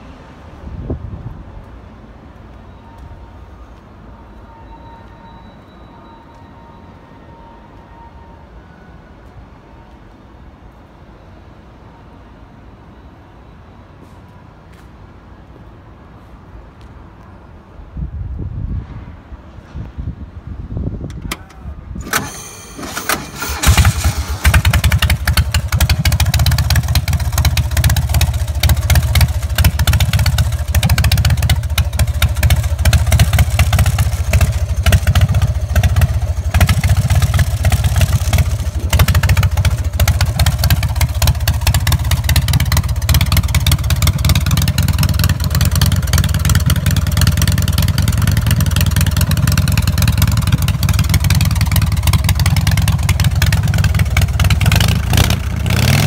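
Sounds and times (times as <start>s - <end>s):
engine cranking: 22.0s - 56.0s.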